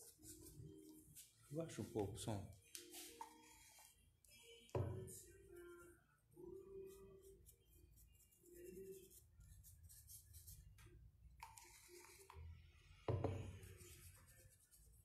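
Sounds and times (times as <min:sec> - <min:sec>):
brush working paint: 0:11.4 - 0:12.4.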